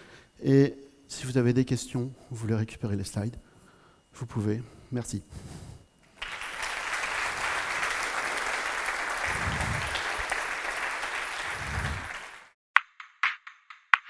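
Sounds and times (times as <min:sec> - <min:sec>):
audience applauding: 0:06.1 - 0:12.6.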